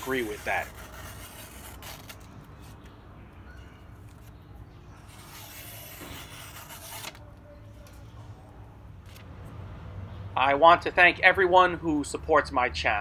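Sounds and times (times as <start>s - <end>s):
knife slicing paper: 0.0s - 2.8s, 5.0s - 7.3s.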